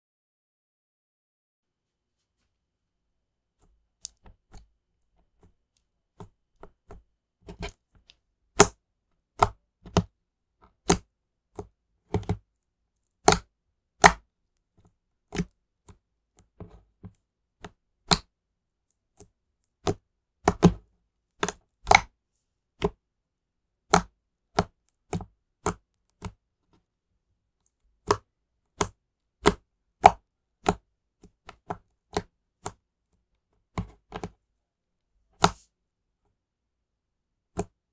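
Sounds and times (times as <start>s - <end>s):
slime popping and clicking: 21.4s - 22.1s.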